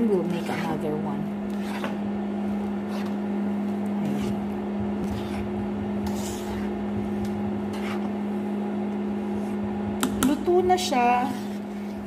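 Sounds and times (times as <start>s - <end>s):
spoon scraping sticky rice: 0.0s - 8.3s, 10.8s - 12.0s
low electric hum: 0.0s - 12.0s.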